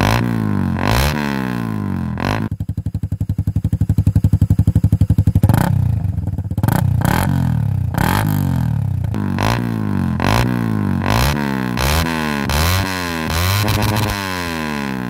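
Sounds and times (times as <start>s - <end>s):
motorcycle engine revving: 0.0s - 15.0s
motorcycle engine idling: 1.6s - 11.8s.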